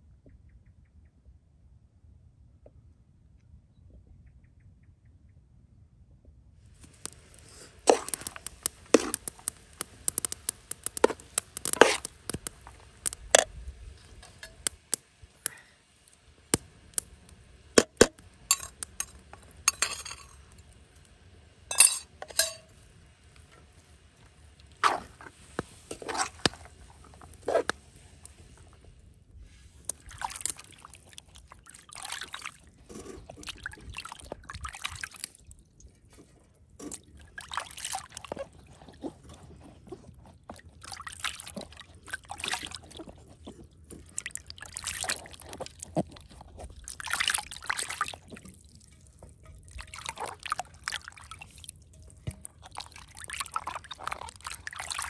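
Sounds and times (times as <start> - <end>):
water sloshing and splashing: 6.8 - 20.5, 23.4 - 55.0
spatula clinking metal pot: 14.2 - 14.8, 17.8 - 20.4, 21.7 - 22.7.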